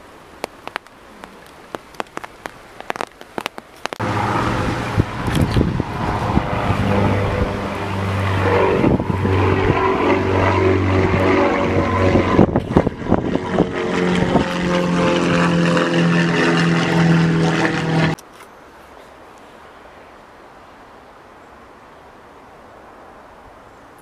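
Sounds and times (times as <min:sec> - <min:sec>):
wind on microphone: 0:03.8 - 0:18.2
propeller plane droning overhead: 0:04.0 - 0:18.2.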